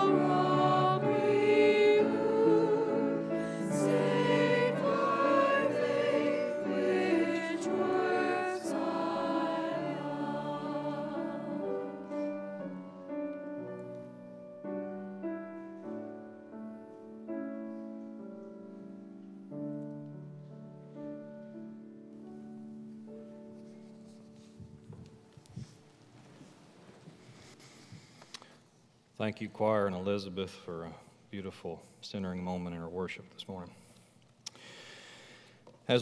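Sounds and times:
church choir singing: 0.0 - 18.9
grand piano playing: 0.0 - 26.7.

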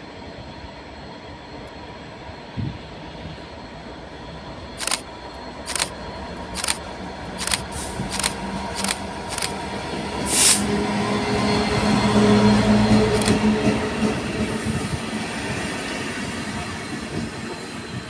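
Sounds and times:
diesel locomotive engine hum: 0.0 - 18.0
wheels clicking on track: 4.8 - 5.0, 5.7 - 5.9, 6.6 - 9.6.

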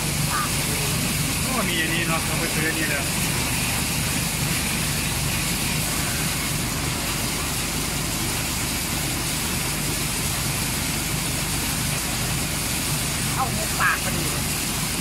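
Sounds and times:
engine droning steadily: 0.0 - 15.0.

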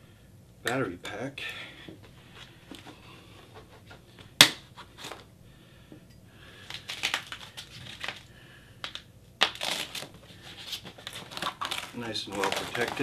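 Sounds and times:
foam packaging crinkling: 6.6 - 13.0
foam snapping: 6.7 - 8.2, 8.8 - 10.1, 11.0 - 13.0.

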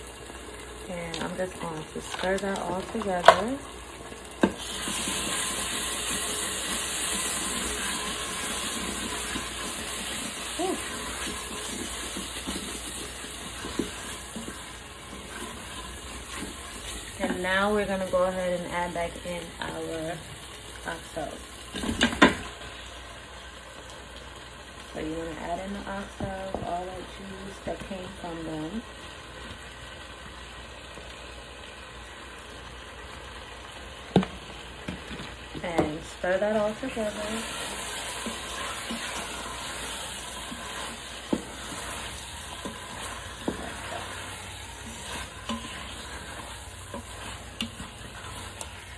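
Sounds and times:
wooden spoon scraping a pot: 4.5 - 18.0, 34.9 - 48.9.

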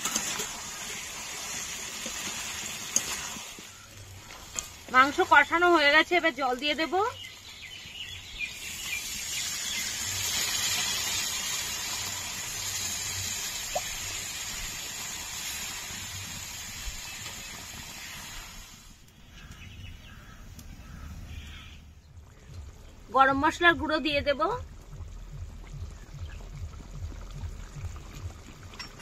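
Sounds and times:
water sizzling in hot pan: 0.0 - 19.1.

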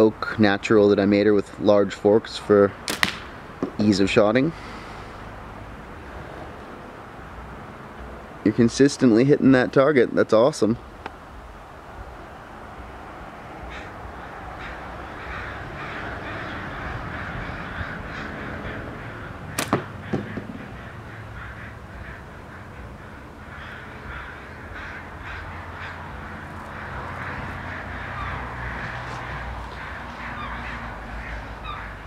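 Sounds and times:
birds calling: 2.8 - 5.8, 13.5 - 32.0
slingshot bands snapping: 2.9 - 3.3
ball striking target: 2.9 - 3.8, 19.6 - 20.7.

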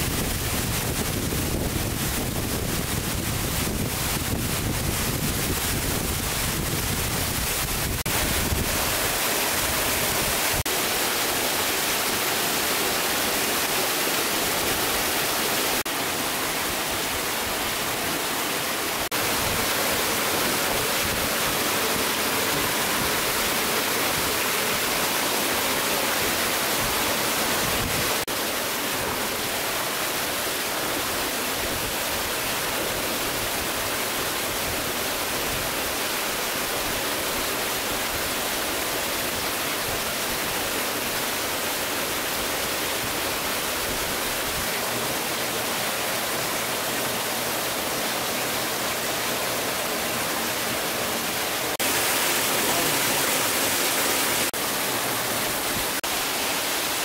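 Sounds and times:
waterfall roaring: 0.0 - 57.0.

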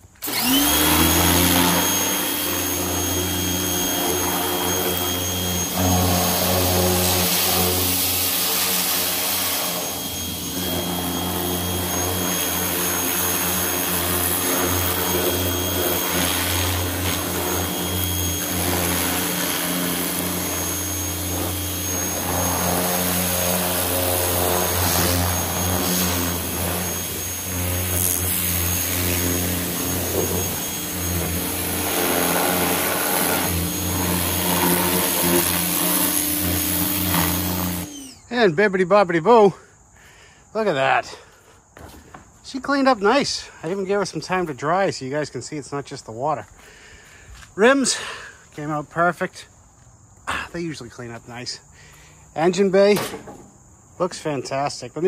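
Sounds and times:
pressure washer motor whine: 0.0 - 39.1
water spray hissing: 1.4 - 37.9.

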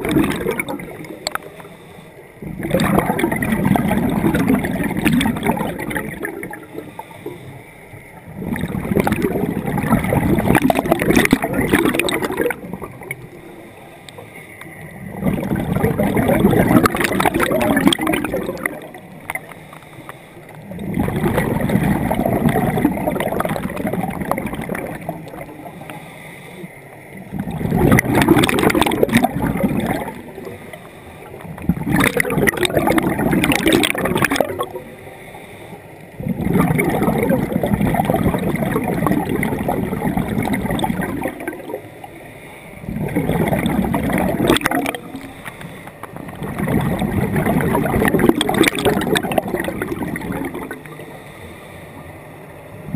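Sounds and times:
underwater bubbles gurgling: 0.0 - 52.9.

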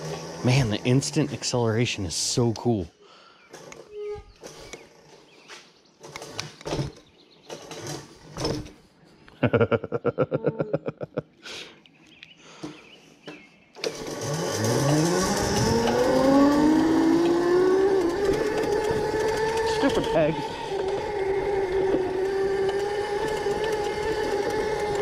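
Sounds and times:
electric motor whine rising: 0.0 - 2.4, 13.8 - 25.0
rapid rattle of clicks: 13.8 - 25.0.

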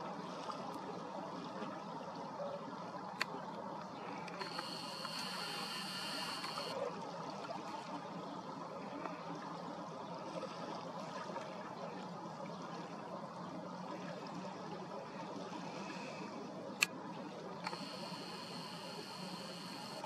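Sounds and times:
outdoor background noise: 0.0 - 20.0
thin high steady tone: 4.4 - 6.8, 17.6 - 20.0.

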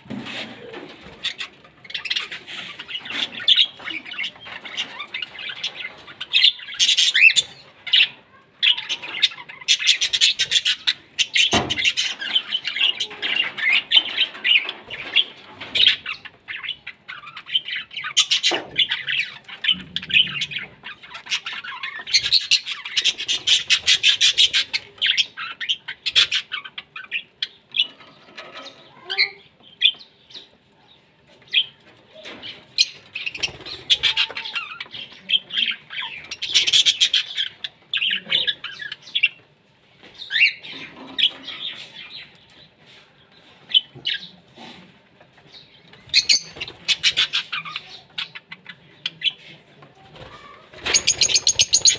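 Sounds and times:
parrots chattering: 0.6 - 30.5, 31.5 - 39.4, 45.5 - 49.5, 50.2 - 51.9.

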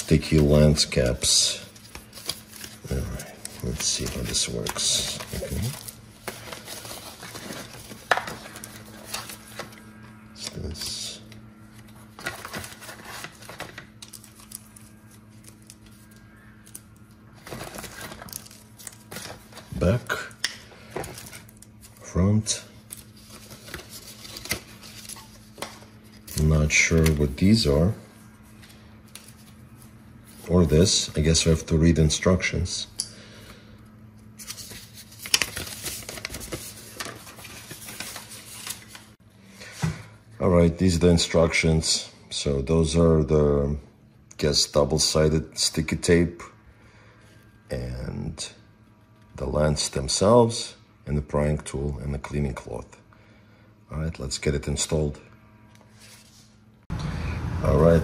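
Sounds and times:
card and paper rustling: 0.0 - 31.6, 34.3 - 39.2.

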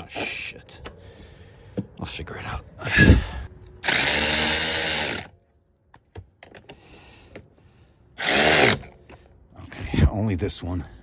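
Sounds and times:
cordless drill driving bolt: 8.2 - 9.0.

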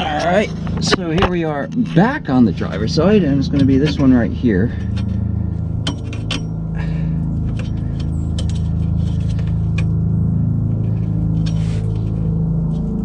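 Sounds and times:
steady low hum: 0.0 - 13.0
metallic clicks and scrapes: 3.5 - 6.6, 7.4 - 10.0.

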